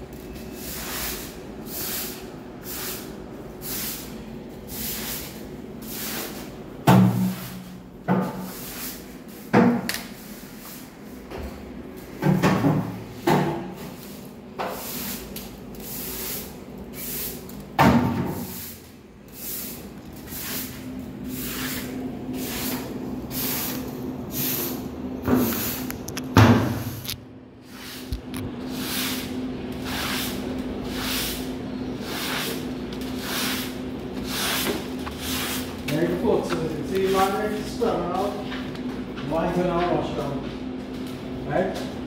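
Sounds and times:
steady low hum: 0.0 - 42.0
scrub brush scrubbing wet floor: 0.4 - 6.6, 8.3 - 9.5, 13.8 - 17.6, 18.3 - 25.8, 27.0 - 38.4.

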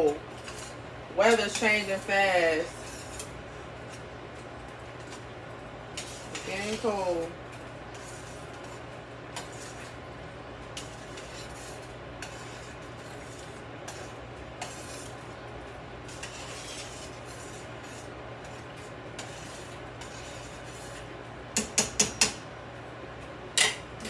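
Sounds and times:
steady hiss and low hum: 0.0 - 24.0
spoon stirring soup in pot: 5.9 - 10.0, 10.7 - 15.3, 16.0 - 22.4.

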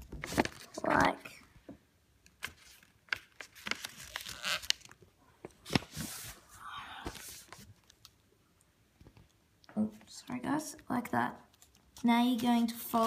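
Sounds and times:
paper rustling and crackling: 0.0 - 1.3, 2.4 - 5.0, 5.6 - 8.2.

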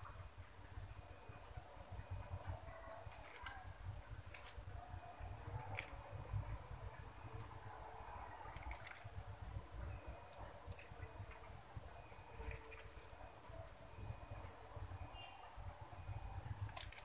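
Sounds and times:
piping bag rustling and clicking: 2.5 - 14.2, 16.4 - 17.0.

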